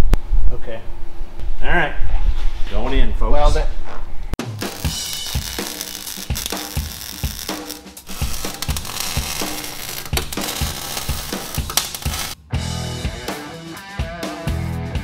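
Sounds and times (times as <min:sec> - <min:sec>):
background music with drum beat: 0:04.4 - 0:15.0
arc welder crackling: 0:04.5 - 0:12.4.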